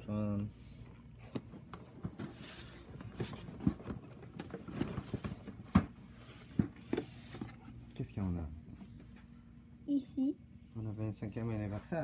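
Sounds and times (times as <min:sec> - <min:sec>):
handling knocks and rustles: 0:01.2 - 0:07.8.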